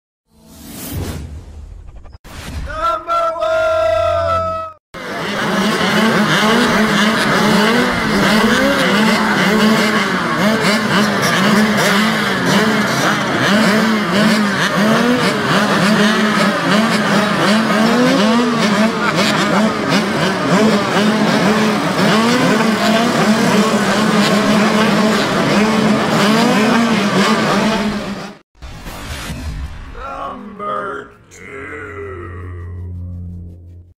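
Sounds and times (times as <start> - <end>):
motocross bikes revving: 5.0 - 28.4.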